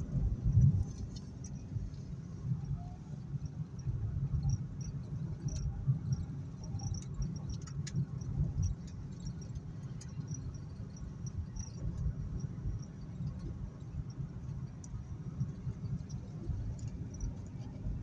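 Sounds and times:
car road and engine rumble: 0.0s - 18.0s
high-pitched ticks and clicks: 4.3s - 18.0s.

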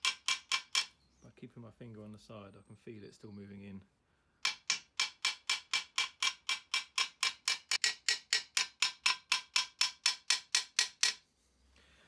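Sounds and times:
hammer tapping metal: 0.0s - 0.9s, 4.4s - 11.2s.

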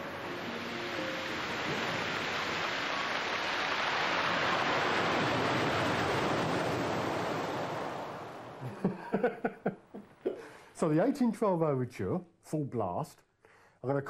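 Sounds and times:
surf washing over pebbles: 0.0s - 8.9s.

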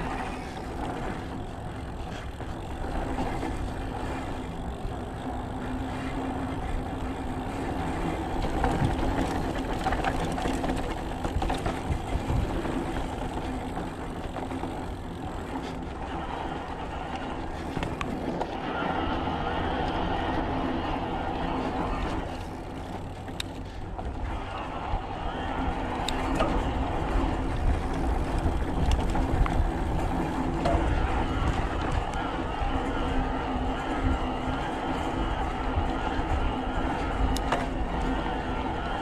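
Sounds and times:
bike tyre and wind rumble: 0.0s - 39.0s
bike knocks and rattles: 0.2s - 18.5s.

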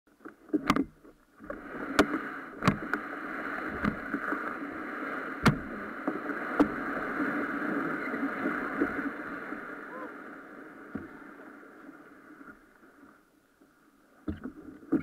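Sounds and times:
sharp knocks on hull: 1.9s - 2.9s, 3.7s - 4.1s, 5.4s - 5.8s.

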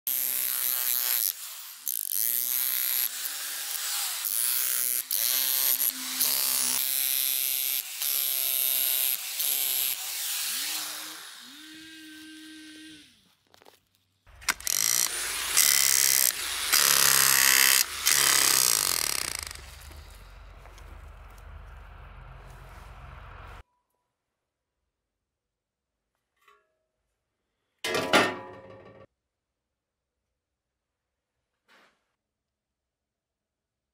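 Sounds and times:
electric jackhammer motor bursts: 14.3s - 21.1s.

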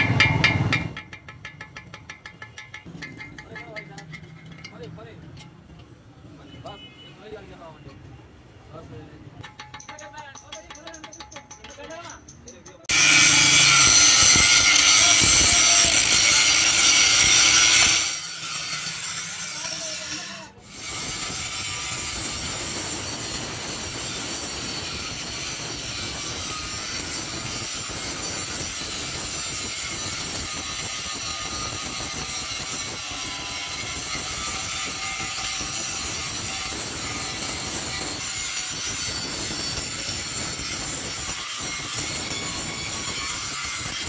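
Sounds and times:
angle grinder grinding steel: 12.9s - 44.0s.

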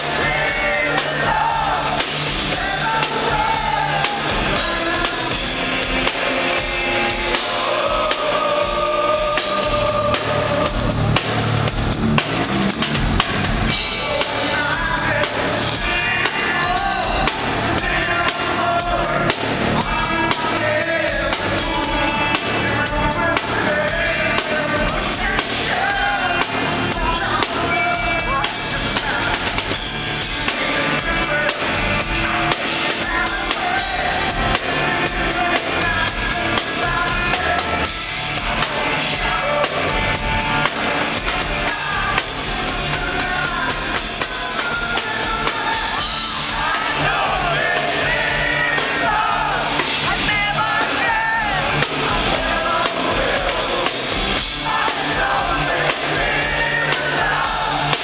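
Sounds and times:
drum kit: 0.0s - 58.0s
man singing into microphone: 13.9s - 29.6s.

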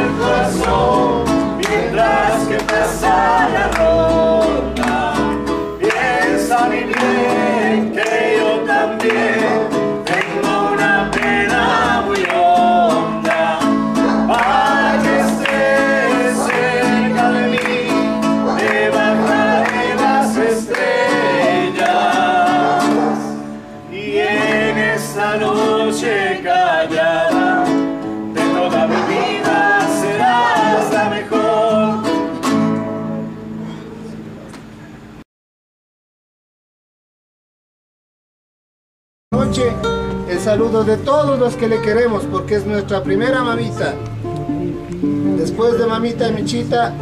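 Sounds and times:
group of people singing: 0.0s - 32.6s
acoustic guitar strumming: 0.0s - 35.2s, 39.3s - 47.0s.

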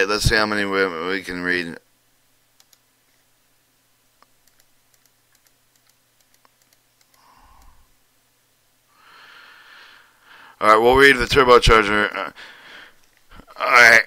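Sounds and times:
computer mouse clicks: 2.6s - 3.2s, 4.2s - 7.8s.

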